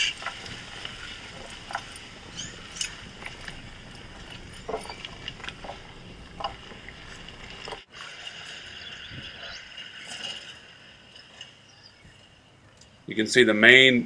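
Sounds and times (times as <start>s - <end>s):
low rumble: 0.2s - 7.8s.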